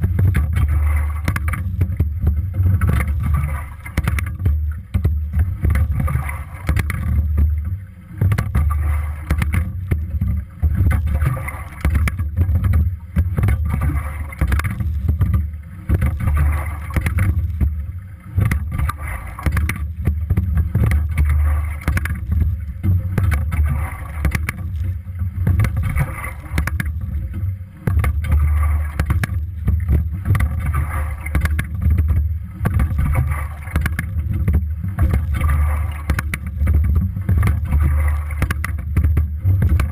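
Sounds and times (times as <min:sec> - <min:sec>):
water and air rushing: 0:00.0 - 0:39.9
clicks and knocks from boat fittings: 0:18.4 - 0:24.8, 0:29.0 - 0:39.9.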